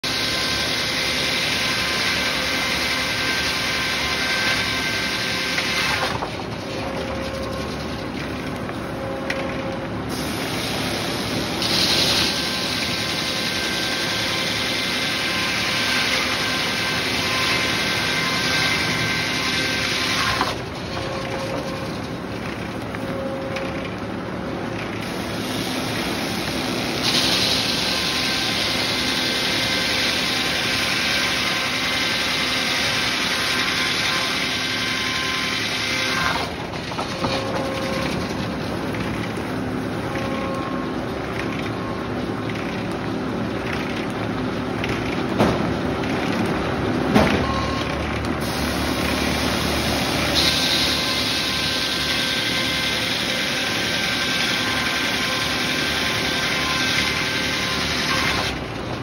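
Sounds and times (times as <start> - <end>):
saw blade cutting wood: 0.0 - 7.6, 11.2 - 21.9, 25.0 - 38.2, 49.1 - 58.6
sawmill machinery running: 0.0 - 59.0.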